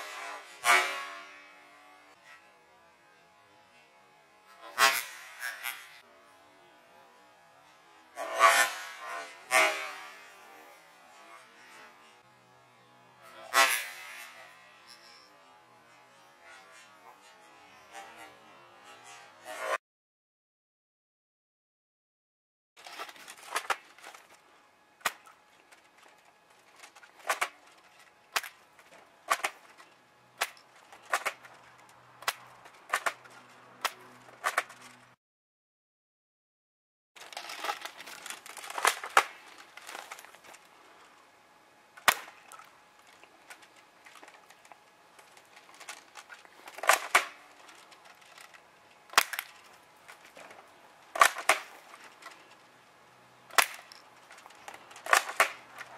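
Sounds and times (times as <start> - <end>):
airsoft rifle shots: 55.0 - 55.7.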